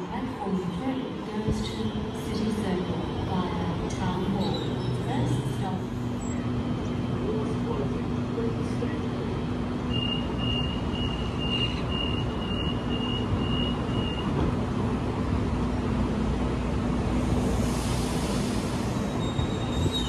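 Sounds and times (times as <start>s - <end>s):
train hiss: 17.2s - 20.0s.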